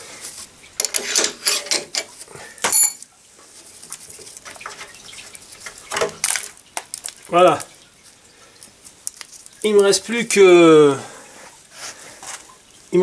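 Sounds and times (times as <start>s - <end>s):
metal tools clinking: 0.8s - 3.1s.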